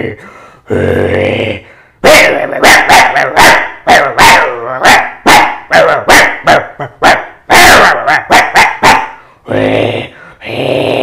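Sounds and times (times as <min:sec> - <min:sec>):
man imitating dog barks: 0:02.0 - 0:10.1.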